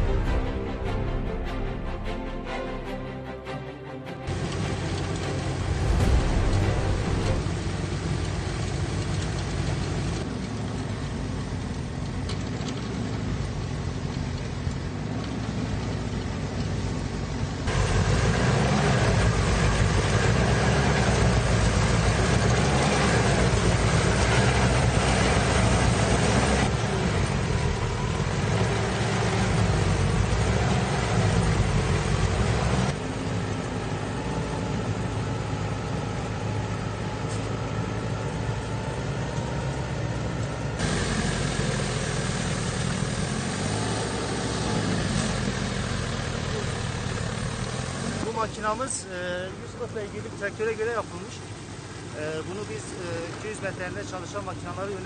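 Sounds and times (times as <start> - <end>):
tractor engine running: 0.0 - 55.0
snow blower rushing: 4.2 - 10.2, 17.7 - 33.0, 40.7 - 48.3.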